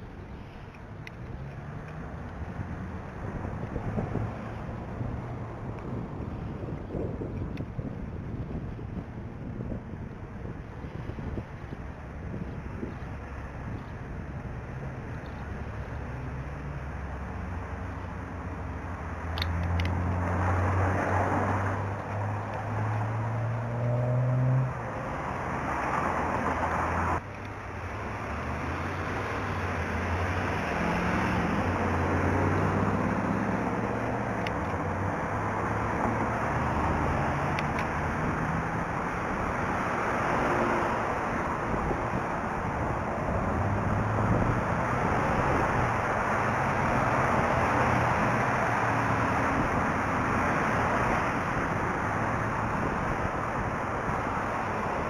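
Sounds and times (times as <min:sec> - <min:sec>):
tyre and traffic noise: 0:00.0 - 0:55.0
vehicle engine accelerating: 0:16.0 - 0:27.2, 0:27.9 - 0:55.0.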